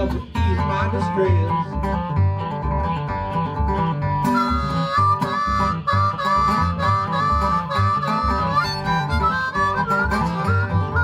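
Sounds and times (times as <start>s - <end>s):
blues harmonica bending notes: 0.0s - 11.0s
plucked washtub bass: 0.0s - 11.0s
strummed acoustic guitar: 0.0s - 11.0s.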